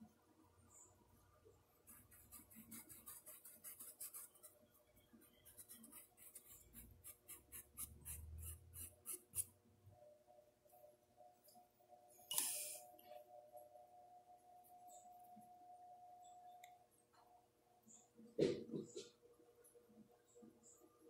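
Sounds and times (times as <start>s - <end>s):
paintbrush scratching on porcelain: 1.9s - 4.5s, 5.1s - 9.5s.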